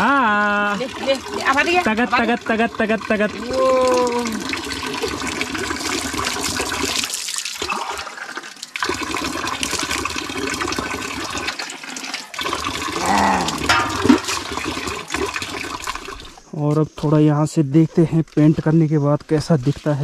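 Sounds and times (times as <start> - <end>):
water splashing from a tap: 0.0 - 16.5, 19.2 - 20.0
water poured from a tumbler: 0.4 - 16.5, 19.3 - 20.0
short voice: 13.0 - 13.7.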